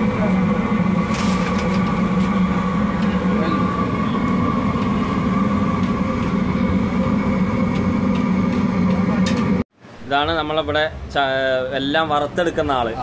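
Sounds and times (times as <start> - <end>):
mechanical drone: 0.0 - 9.6.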